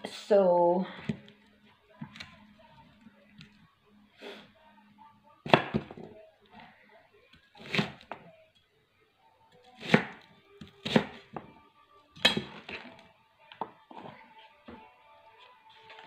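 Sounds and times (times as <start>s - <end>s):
knife slicing fennel: 10.8s - 11.2s.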